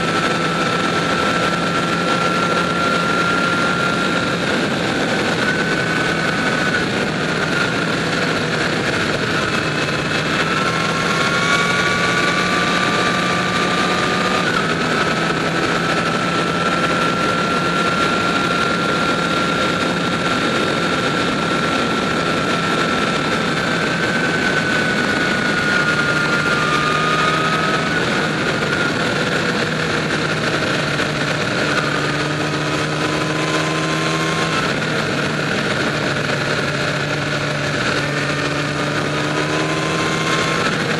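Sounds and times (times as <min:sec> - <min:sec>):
motorcycle engine running: 0:00.0 - 0:40.9
wind rush: 0:00.0 - 0:40.9.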